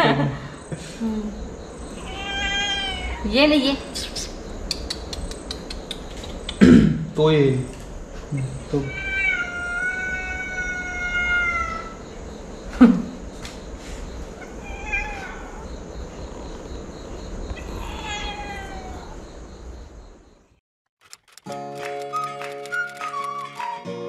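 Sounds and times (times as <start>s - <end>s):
cat meowing: 1.9s - 3.3s, 8.7s - 12.0s, 14.4s - 15.7s, 17.5s - 19.2s.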